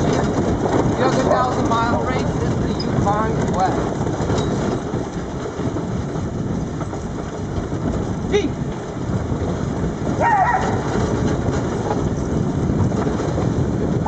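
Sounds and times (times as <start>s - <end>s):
cart wheels rolling on road: 0.0s - 14.0s.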